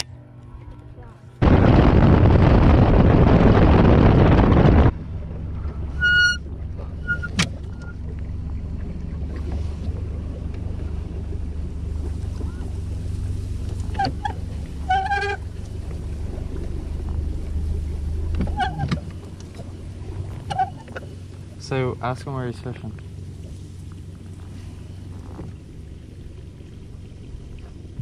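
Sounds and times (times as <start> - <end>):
boat motor humming: 0.0 - 28.0
short high-pitched calls: 5.9 - 6.4.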